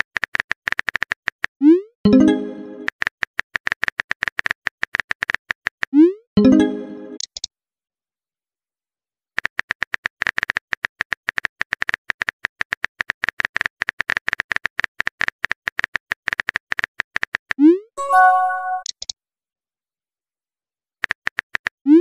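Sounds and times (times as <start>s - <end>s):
short electronic chime: 18.0s - 18.9s.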